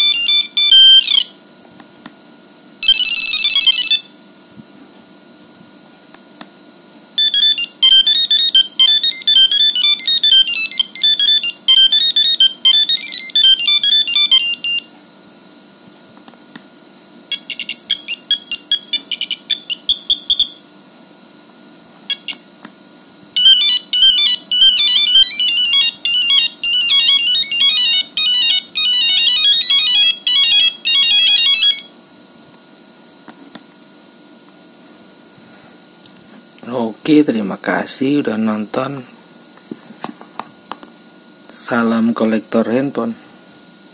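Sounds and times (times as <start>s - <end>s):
monophonic phone ringtones: 0.0s - 1.3s, 2.8s - 4.1s, 7.2s - 14.9s, 17.3s - 20.6s, 23.4s - 32.0s.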